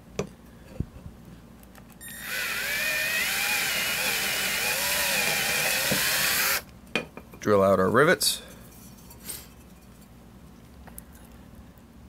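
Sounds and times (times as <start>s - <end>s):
power drill boring metal: 2.0s - 6.6s.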